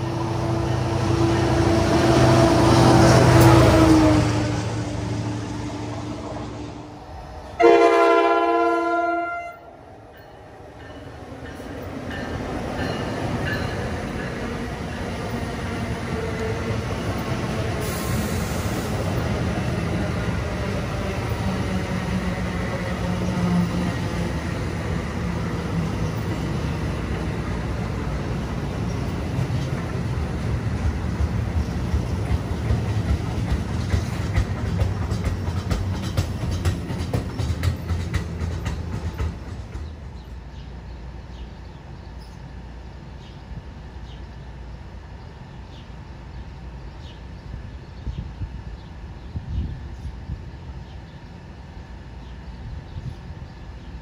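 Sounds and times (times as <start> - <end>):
passing train rumble: 0.0 - 54.0
train horn blast: 7.6 - 9.7
train wheels clicking: 10.8 - 40.6.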